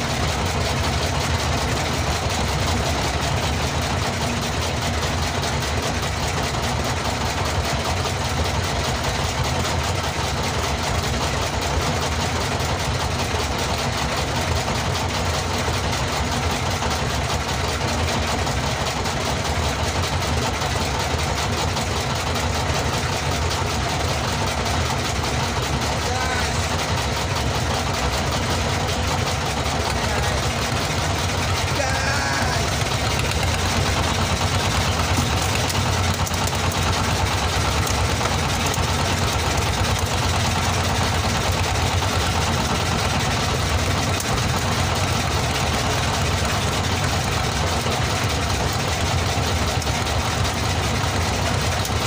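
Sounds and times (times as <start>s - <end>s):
boat engine droning: 0.0s - 52.0s.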